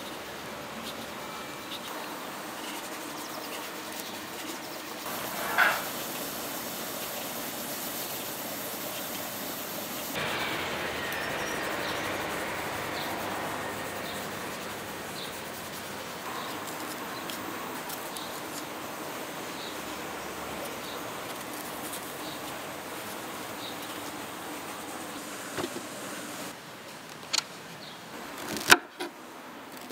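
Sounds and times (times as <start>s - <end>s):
outdoor background noise: 0.0s - 29.9s
faint bird chirps: 10.2s - 17.4s.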